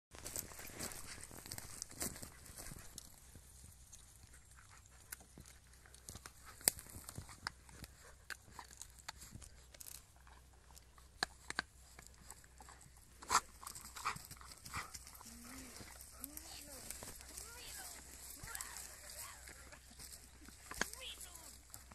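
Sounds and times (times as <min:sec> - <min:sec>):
twigs snapping and crunching: 0:00.2 - 0:21.9.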